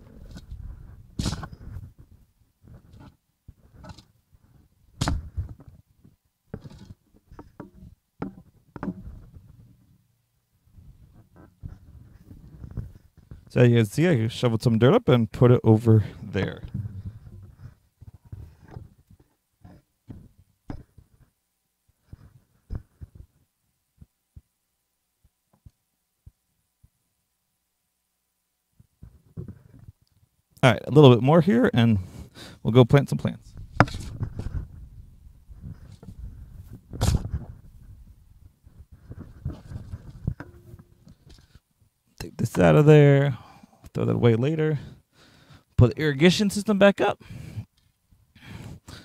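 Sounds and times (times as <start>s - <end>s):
shovel scraping soil: 1.2s - 1.7s, 36.9s - 37.4s.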